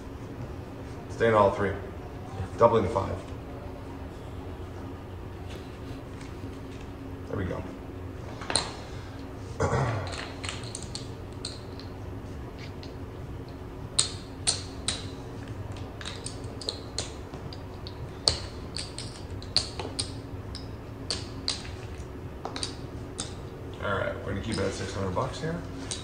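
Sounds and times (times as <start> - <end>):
steady low hum: 0.0 - 26.0
casino chips clicking: 10.1 - 12.0, 12.7 - 23.4.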